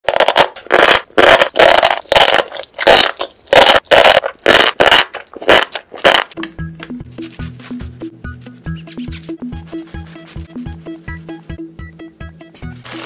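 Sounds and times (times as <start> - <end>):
wet chewing and slurping: 0.1 - 6.4.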